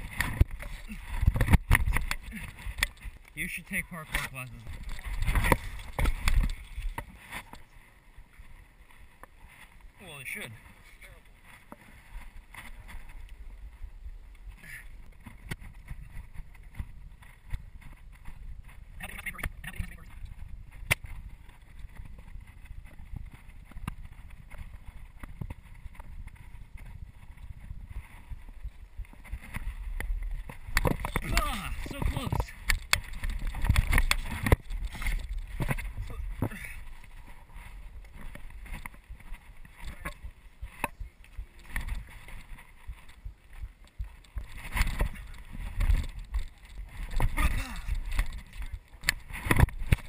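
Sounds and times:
wind rumbling on microphone: 0.0s - 50.0s.

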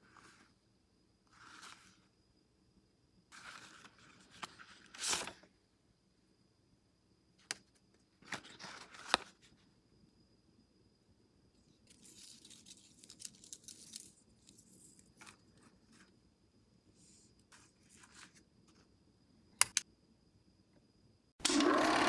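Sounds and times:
sharp clicks: 19.6s - 19.9s
film projector running: 21.4s - 22.0s.

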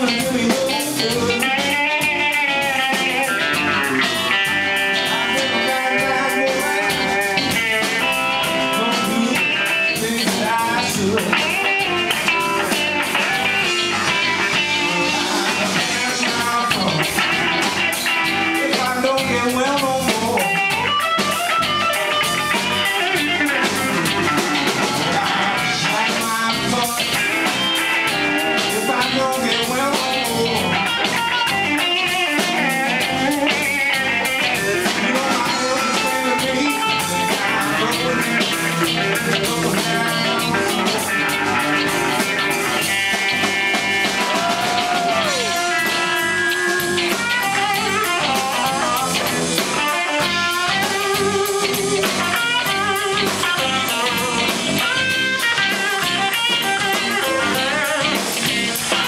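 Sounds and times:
electric guitar lines: 0.0s - 59.0s
live blues band playing: 0.0s - 59.0s.

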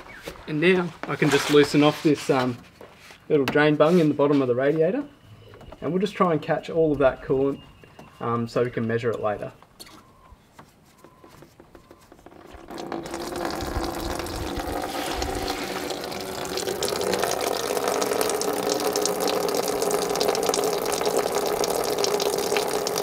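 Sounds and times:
coolant splashing into pan: 12.5s - 23.0s.

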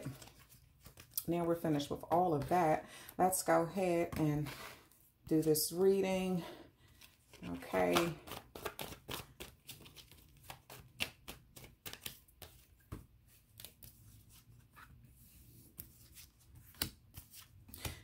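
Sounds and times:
cards being shuffled: 0.0s - 2.5s, 6.9s - 18.0s.

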